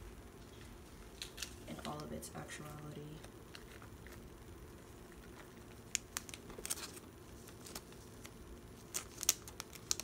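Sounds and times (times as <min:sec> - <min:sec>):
plastic sleeve crinkling: 0:05.1 - 0:10.0.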